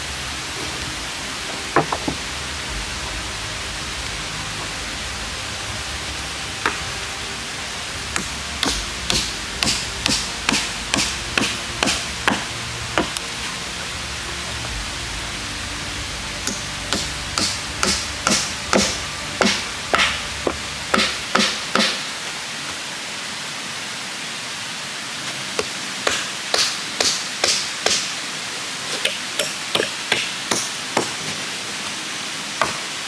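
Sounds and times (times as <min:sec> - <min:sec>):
machete chopping into log: 0:08.2 - 0:12.4.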